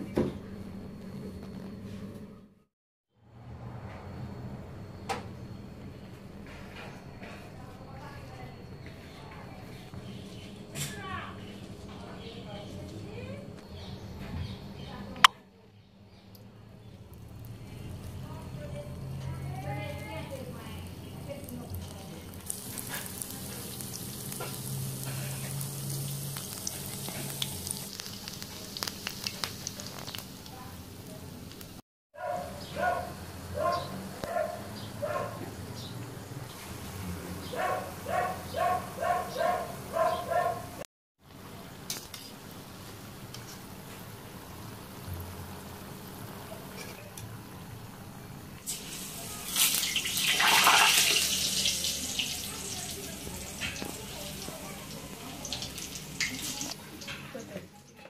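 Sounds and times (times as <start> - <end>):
oil sizzling with pops: 16.3 - 31.8, 41.8 - 47.3, 48.6 - 57.6.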